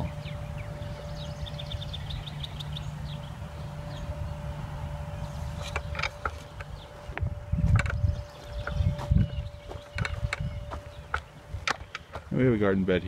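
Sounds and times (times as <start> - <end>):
low rumble: 0.0 - 12.0
faint hum: 0.0 - 13.0
small bird trilling: 6.5 - 12.1.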